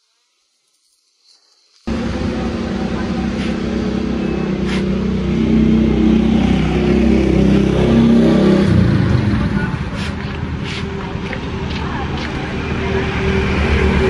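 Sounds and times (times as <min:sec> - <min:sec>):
vehicle engine running: 0:01.9 - 0:14.0.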